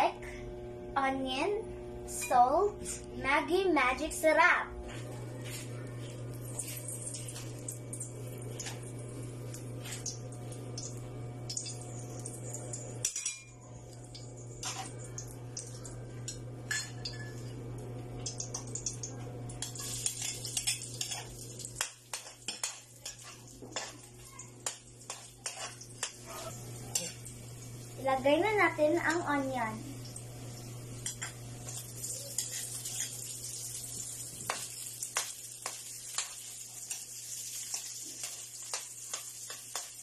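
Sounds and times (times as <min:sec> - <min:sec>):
steady low hum: 0:00.0 - 0:37.0
metal utensils clinking on pan: 0:11.5 - 0:15.0, 0:15.6 - 0:17.4, 0:19.6 - 0:27.3, 0:34.5 - 0:40.0.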